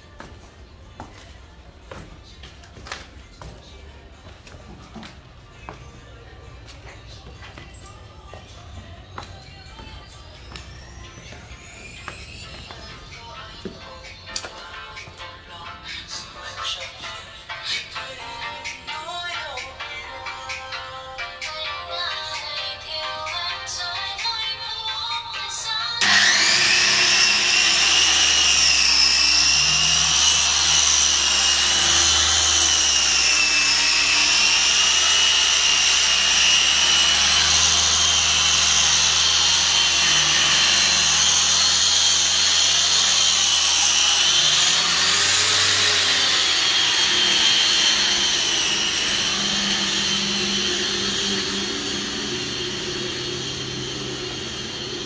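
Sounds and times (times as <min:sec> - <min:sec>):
angle grinder whining: 0:08.9 - 0:21.4, 0:26.0 - 0:55.0.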